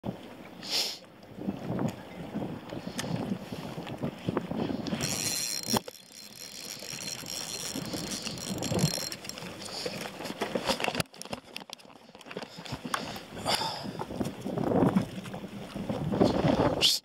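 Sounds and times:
fishing reel gear whir: 4.8s - 11.0s.

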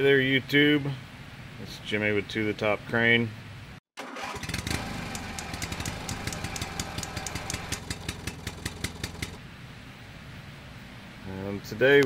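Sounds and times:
engine idling with rapid clatter: 4.0s - 9.4s.

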